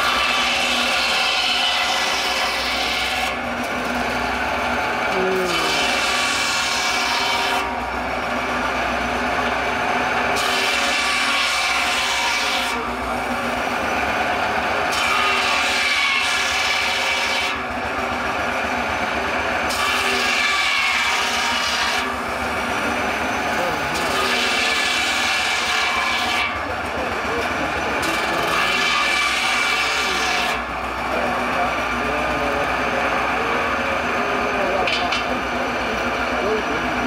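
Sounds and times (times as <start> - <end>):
circular saw cutting log: 0.0 - 37.0
steam engine: 0.0 - 37.0.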